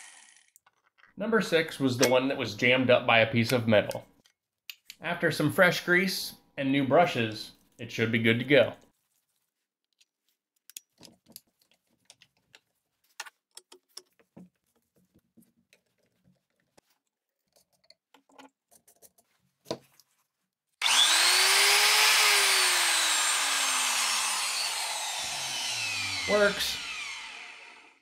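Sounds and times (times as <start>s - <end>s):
handling clicks and taps: 3.5s - 5.0s, 9.9s - 20.1s
angle grinder motor whine: 20.8s - 28.0s.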